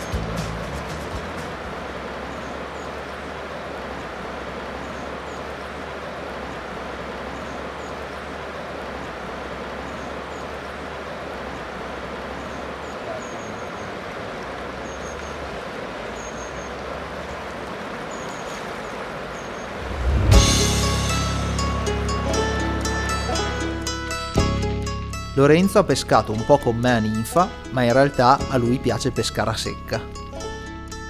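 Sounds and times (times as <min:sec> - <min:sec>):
river water rushing: 0:00.0 - 0:30.7.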